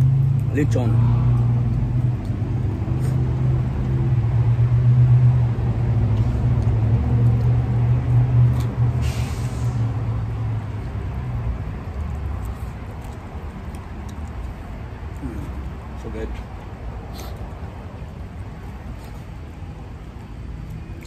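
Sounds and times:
short hiss: 0:09.0 - 0:09.8.

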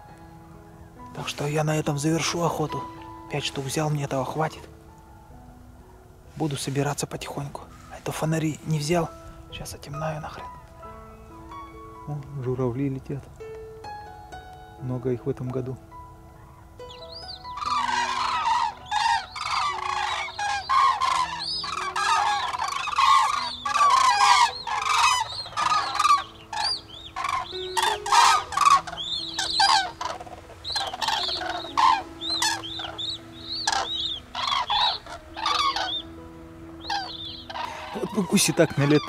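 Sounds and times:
cranes calling in flight: 0:17.4 - 0:36.0, 0:36.8 - 0:39.0.

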